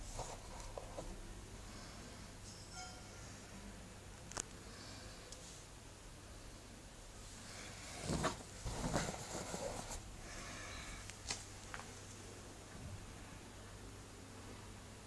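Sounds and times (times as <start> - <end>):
cardboard rustling and scraping: 0.0 - 1.1, 7.9 - 10.1.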